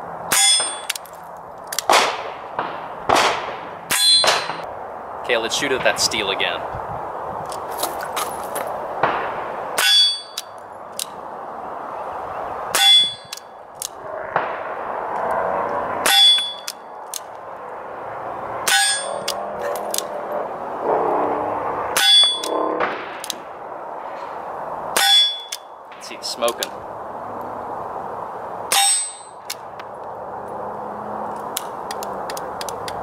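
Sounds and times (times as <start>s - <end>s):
steel target clanging: 0.3s - 0.9s, 3.9s - 4.6s, 9.8s - 10.5s, 12.7s - 13.4s, 16.0s - 16.7s, 18.6s - 19.9s, 22.0s - 23.2s, 25.0s - 26.2s, 28.7s - 29.4s.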